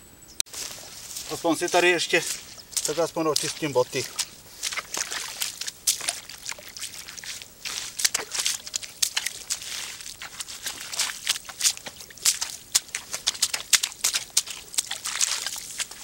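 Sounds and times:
boots splashing in muddy puddle: 0:00.5 - 0:16.0.

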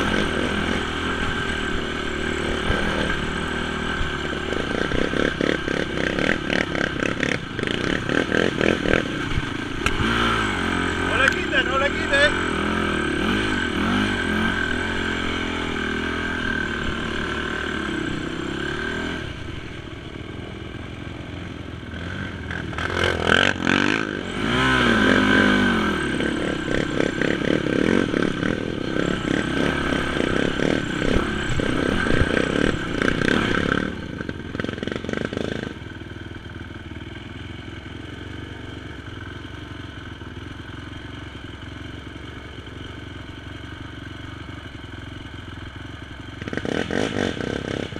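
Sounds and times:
quad engine revving: 0:00.0 - 0:36.1, 0:46.4 - 0:47.9.

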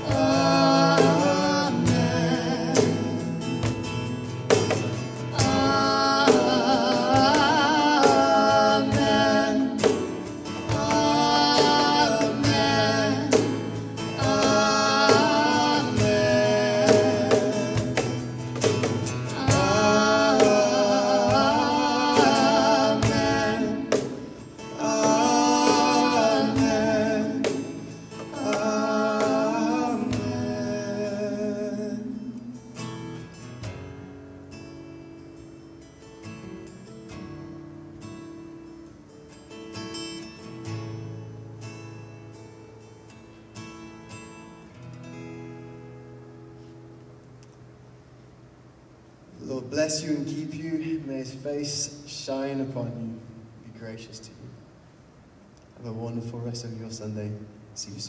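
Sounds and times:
woman singing worship song: 0:00.0 - 0:03.7, 0:05.2 - 0:18.2, 0:19.0 - 0:32.8
acoustic guitar: 0:00.0 - 0:58.0.

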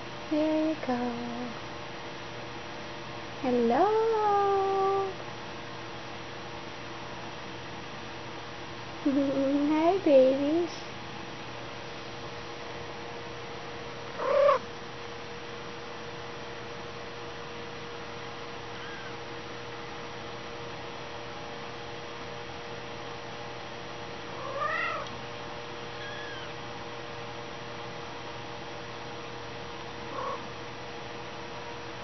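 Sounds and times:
steady low hum: 0:00.0 - 0:32.0
kittens mewing: 0:14.2 - 0:14.6, 0:18.7 - 0:19.2, 0:24.4 - 0:25.1, 0:25.9 - 0:26.6, 0:30.1 - 0:30.5.

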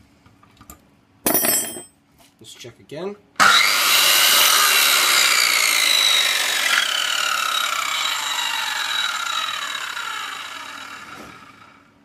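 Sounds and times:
circular saw spinning down: 0:03.4 - 0:11.9.

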